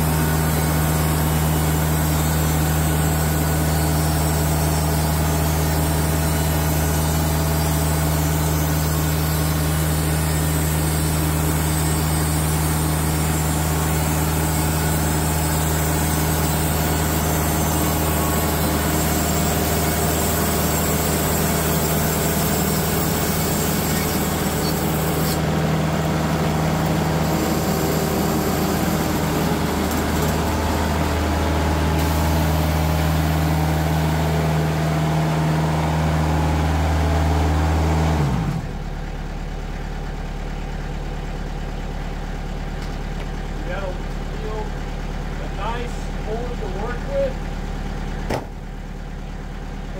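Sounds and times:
engine drone: 0.0 - 49.9
band blade cutting log: 22.2 - 25.5.

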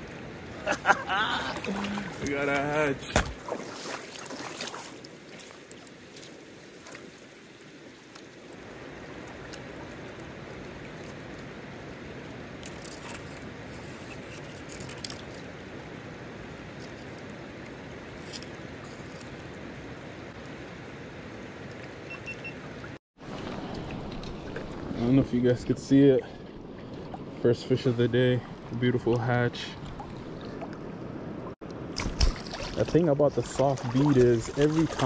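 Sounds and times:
river rushing over gravel: 0.0 - 13.8.

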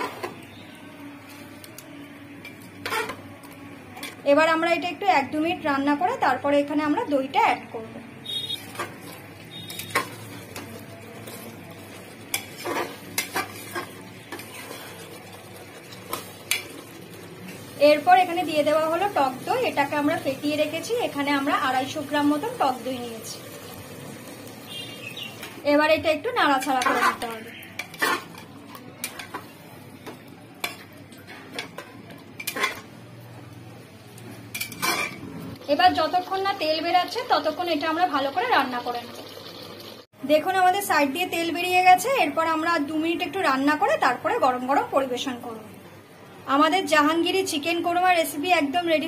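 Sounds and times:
curry sizzling: 0.0 - 5.0, 8.2 - 49.0
metal ladle scraping pot: 2.4 - 3.2, 8.4 - 15.2, 26.6 - 29.5, 30.6 - 32.9, 34.5 - 35.3.

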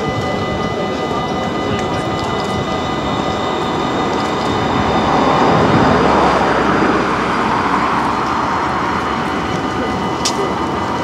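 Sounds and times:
tram wheels on rails: 0.0 - 11.0.

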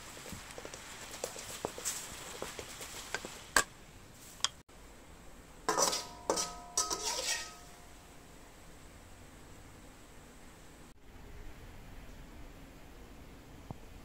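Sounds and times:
spatula scraping wok: 5.7 - 8.0
wok ringing: 5.7 - 8.2.

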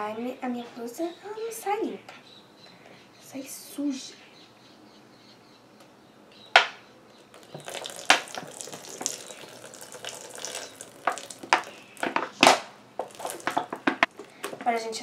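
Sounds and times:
slime squelching and crackling: 7.3 - 14.7.

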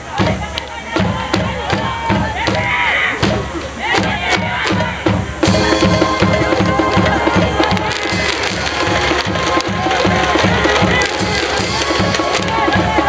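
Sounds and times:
steady drumbeat: 0.0 - 13.0
brass-like held tones: 4.9 - 13.0.

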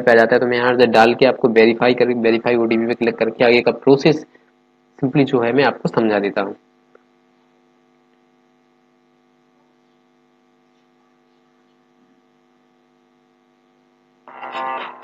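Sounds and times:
faint mains hum: 0.0 - 15.0
music with guitar: 14.3 - 15.0.

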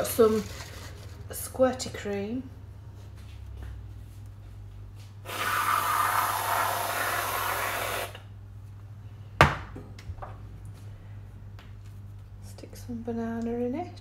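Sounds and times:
aerosol cream can hissing: 5.3 - 8.2.

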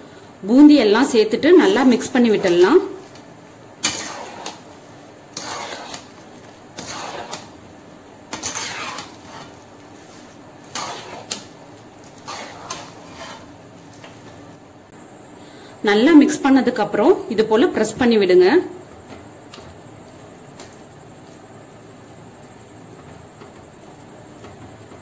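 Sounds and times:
spoon scraping a pan: 3.8 - 7.7, 8.3 - 14.4.

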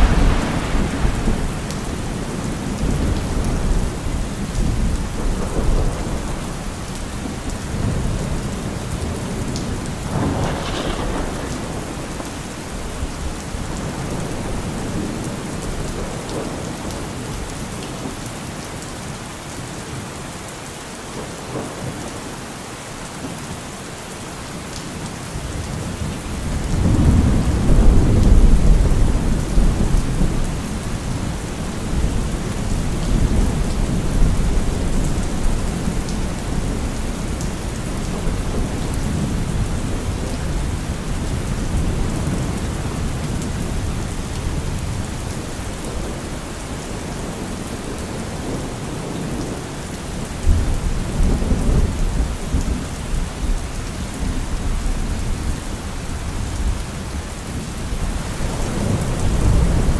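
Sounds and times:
thunder rumbling: 0.0 - 17.1, 25.5 - 46.2, 58.0 - 59.9
heavy rain falling: 0.0 - 59.9.

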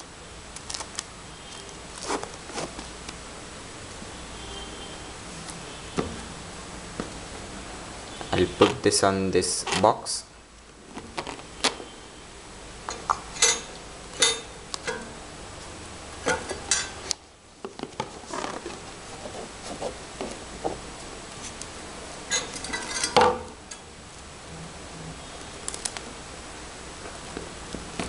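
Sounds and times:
plastic film crinkling: 0.5 - 3.2.

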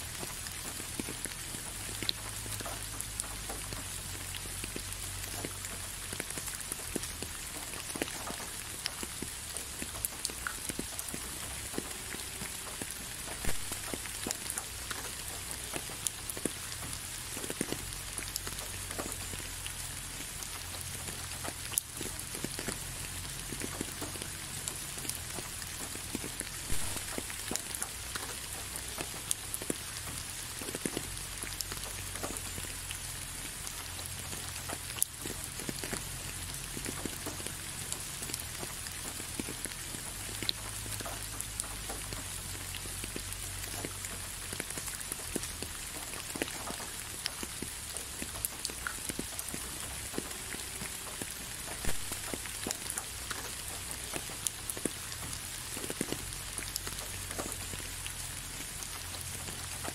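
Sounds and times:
raindrops ticking: 0.0 - 59.9
steady rain falling: 0.0 - 59.9.

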